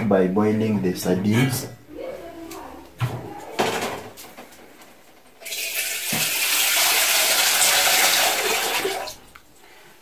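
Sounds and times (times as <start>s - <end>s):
water pouring into a pot: 5.4s - 9.2s.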